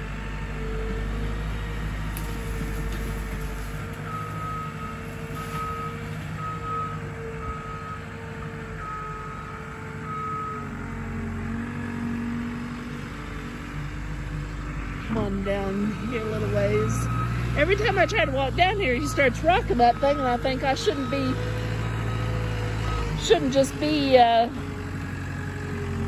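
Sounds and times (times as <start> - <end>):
loader engine running: 0.0 - 26.0
reversing alarm beeping: 4.1 - 8.2, 8.8 - 10.8, 15.9 - 24.2.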